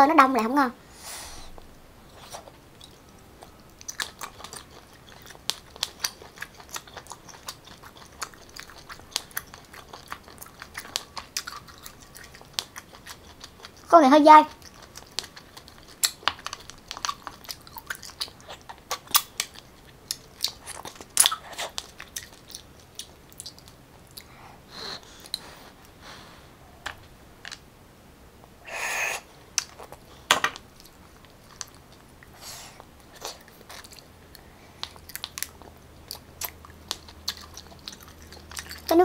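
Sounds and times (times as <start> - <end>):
person chewing and biting: 2.1 - 13.9, 14.6 - 24.4, 29.6 - 38.9.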